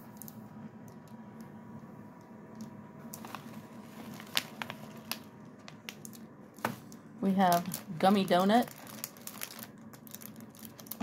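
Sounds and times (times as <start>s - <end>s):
low background hum: 0.0s - 11.0s
plastic packaging crinkling: 3.1s - 11.0s.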